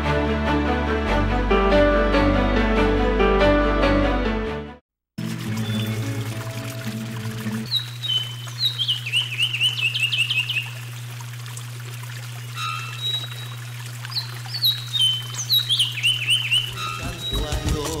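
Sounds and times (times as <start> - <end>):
songbird whistling: 7.7 - 10.8, 12.6 - 17.9
sharp chattering notes: 16.6 - 18.0.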